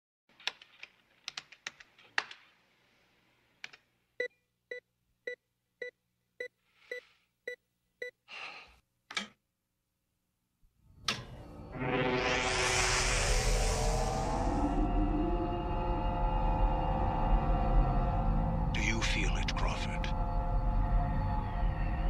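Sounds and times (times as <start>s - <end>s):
keyboard clicks: 0.4s - 2.4s.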